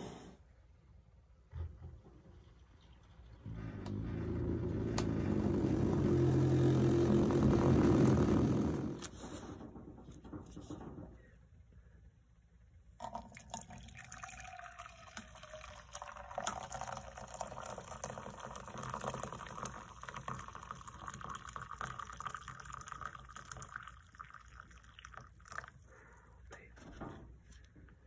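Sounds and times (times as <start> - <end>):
coffee pouring into a mug: 13.0 - 25.9.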